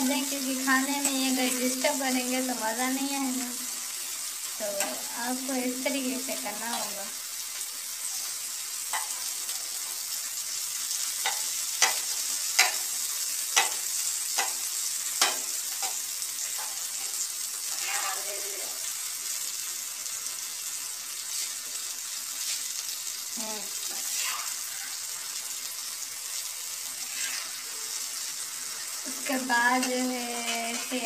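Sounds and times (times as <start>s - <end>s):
vegetables sizzling in oil: 0.0s - 31.0s
spatula tapping a griddle: 8.9s - 9.3s, 11.2s - 12.9s, 13.5s - 16.0s.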